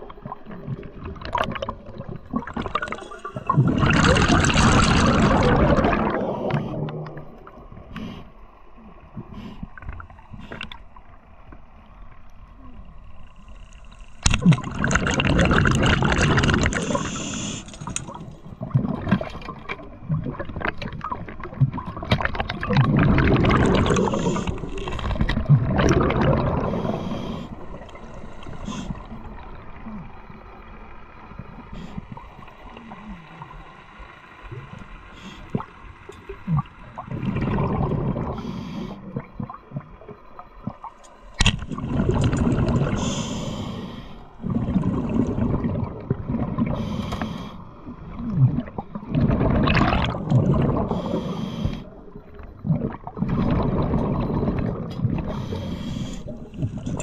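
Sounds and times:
air bubbles underwater: 0.0 - 8.0, 13.4 - 33.8, 34.4 - 57.0
diver breathing through regulator: 16.6 - 18.2, 23.6 - 25.0, 26.4 - 29.3, 35.1 - 35.8, 38.1 - 39.1, 42.5 - 45.5, 46.6 - 47.8, 50.6 - 52.0, 55.2 - 57.0.

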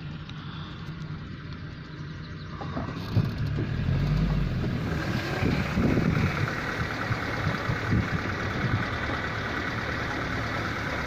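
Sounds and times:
vehicle engine idling: 0.0 - 11.0
engine knock: 2.4 - 11.0.

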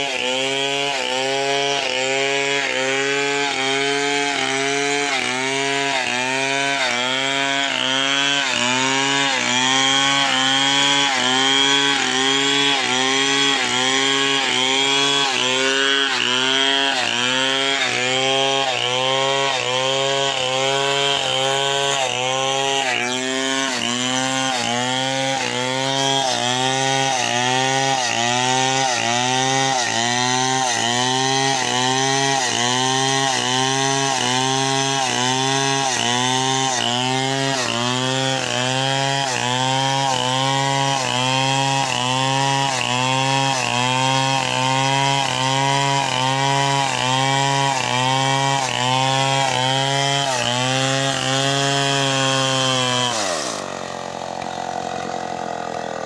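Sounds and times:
chainsaw cutting wood: 0.0 - 56.0.

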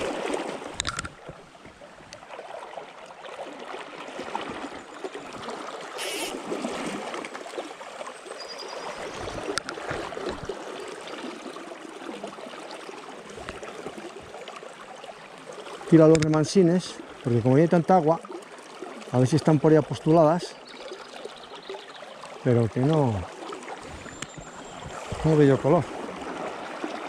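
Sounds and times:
river water rushing: 0.0 - 27.0
short hiss: 6.0 - 6.4.

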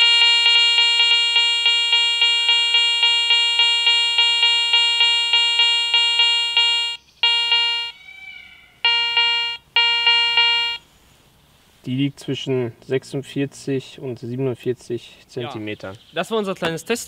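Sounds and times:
metal detector pulsing tone: 0.0 - 8.0, 8.8 - 10.8.

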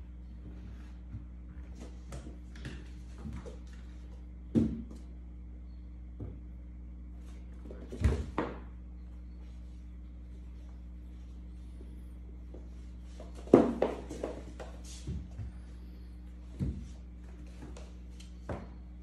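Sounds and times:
kittens scuffling on wooden floor: 0.4 - 4.2, 9.4 - 18.7.

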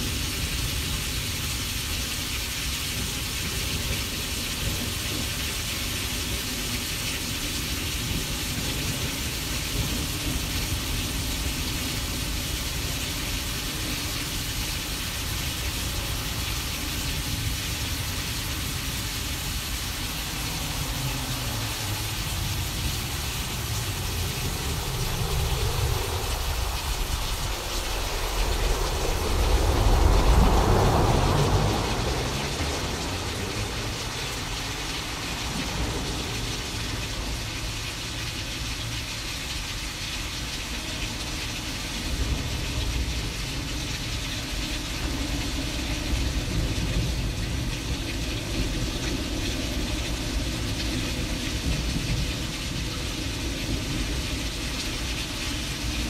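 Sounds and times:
hiss of rain: 0.0 - 56.0
low rumble of thunder: 2.9 - 38.9, 40.4 - 56.0.

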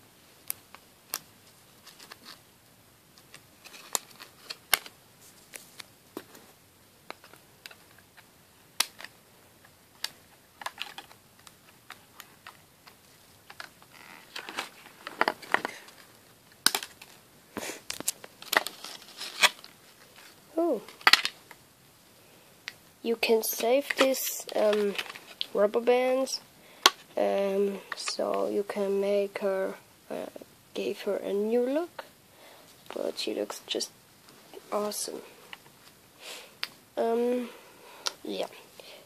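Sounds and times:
plastic packaging crinkling: 13.5 - 17.2, 17.9 - 20.4, 24.6 - 25.5.

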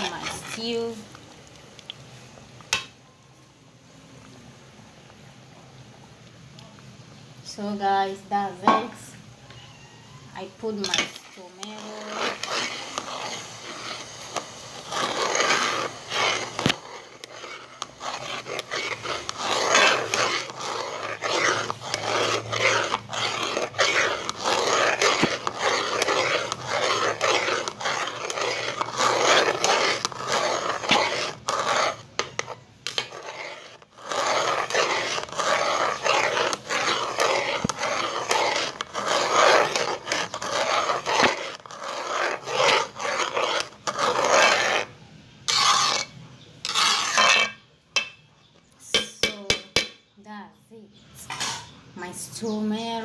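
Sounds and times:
metal turner scraping metal pot: 0.0 - 1.1, 10.4 - 48.2.

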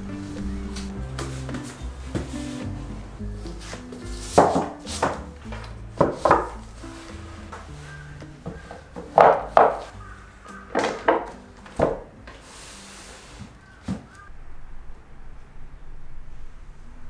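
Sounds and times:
soft background music: 0.0 - 14.3
books knocking on wooden shelf: 3.6 - 6.6, 7.5 - 9.9, 10.7 - 12.1.

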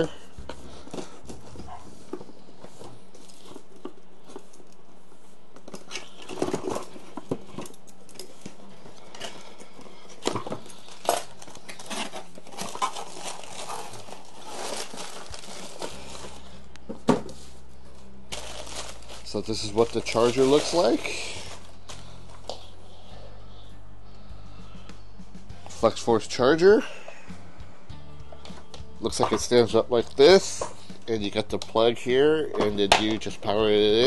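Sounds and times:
bubble wrap crinkling: 0.0 - 16.8, 18.0 - 22.8.

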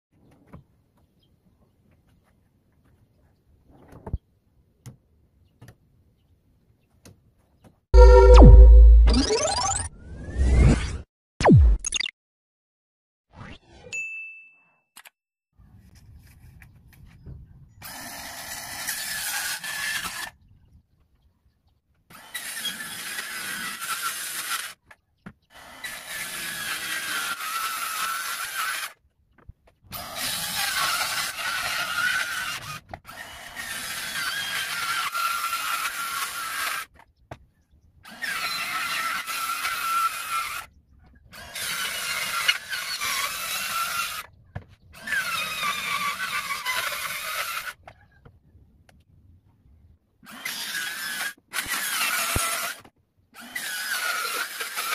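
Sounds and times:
circular saw cutting plywood: 18.0 - 20.3, 22.2 - 24.8, 25.5 - 29.0, 30.0 - 37.0, 38.1 - 40.7, 41.4 - 44.3, 45.0 - 48.0, 50.2 - 54.9.

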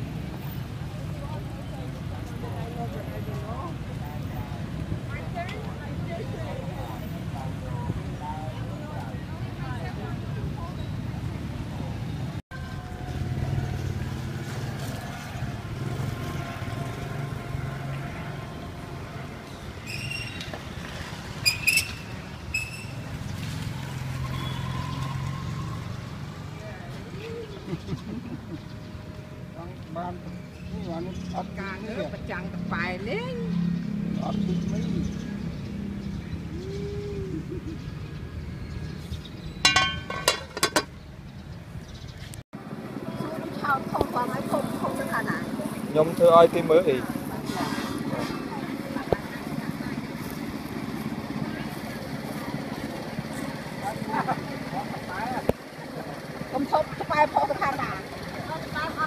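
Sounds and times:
vehicle engine humming: 20.5 - 59.0
metal pot lid clinking: 39.6 - 40.9
low background murmur: 47.0 - 59.0.

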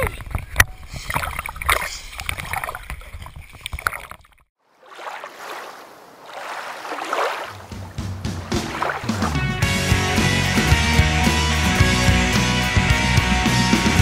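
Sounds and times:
lake water splashing and sloshing: 0.5 - 10.0
swimmer thrashing in water: 4.7 - 9.6.

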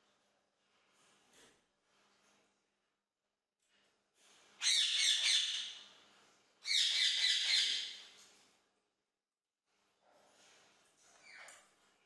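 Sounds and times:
parakeet calling: 6.6 - 8.0.

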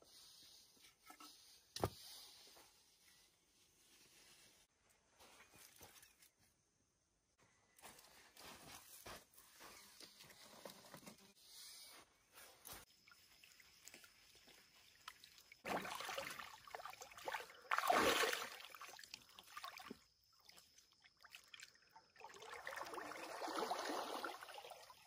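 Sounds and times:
water splashing and sloshing: 12.6 - 25.0.

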